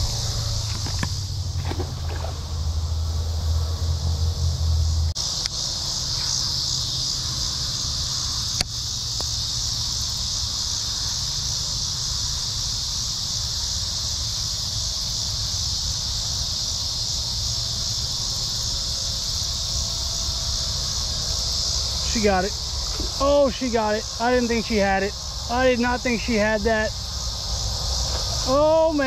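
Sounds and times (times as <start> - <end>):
insects buzzing: 0.0 - 29.0.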